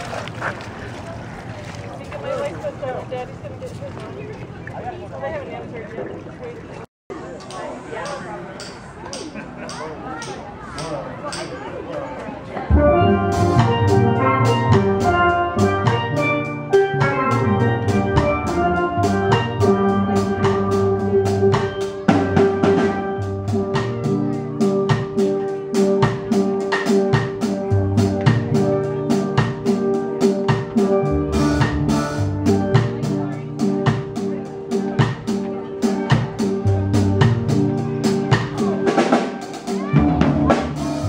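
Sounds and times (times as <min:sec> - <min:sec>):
drum kit beat: 0:12.7 - 0:41.0
steel pans playing melody: 0:12.7 - 0:41.0.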